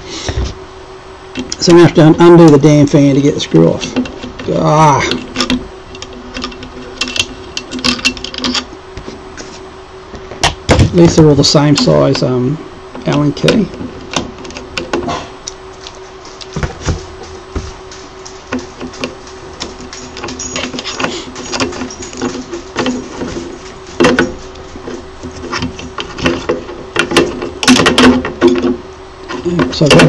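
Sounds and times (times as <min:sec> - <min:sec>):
steady low hum: 0:00.0 - 0:30.0
metal parts clicking and knocking: 0:03.8 - 0:08.7, 0:18.3 - 0:24.4, 0:25.4 - 0:28.8.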